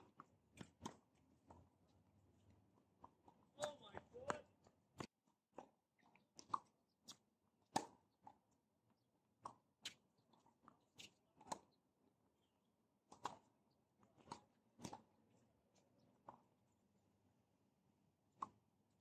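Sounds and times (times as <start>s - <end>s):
tennis ball struck by rackets: 7.7s - 8.0s.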